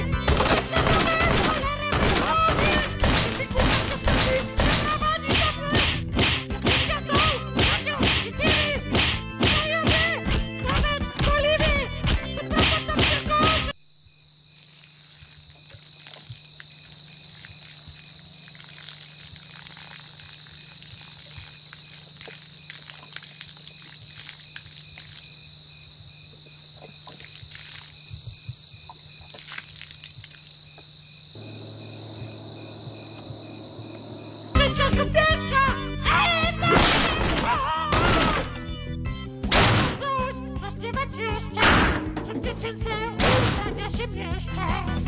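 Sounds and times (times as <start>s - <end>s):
crickets chirping: 13.4s - 36.6s.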